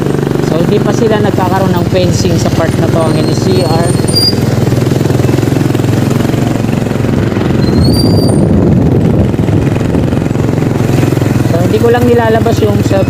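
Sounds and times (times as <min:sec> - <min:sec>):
motor scooter engine running: 0:00.0 - 0:13.0
high squeal: 0:03.0 - 0:04.5, 0:07.5 - 0:08.5.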